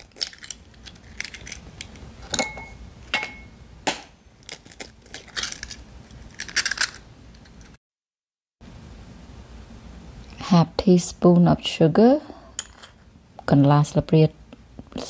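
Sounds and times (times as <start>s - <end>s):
eggshells cracking: 0.0s - 2.0s.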